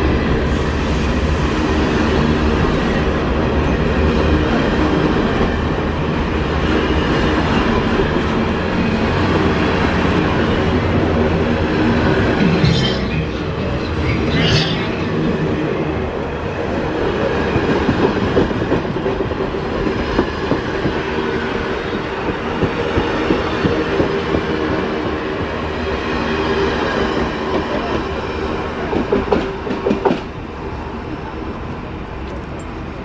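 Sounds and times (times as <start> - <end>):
train wheels rushing on rail: 0.0 - 33.0
rail clacks: 3.7 - 15.6, 16.7 - 25.8, 26.7 - 30.4.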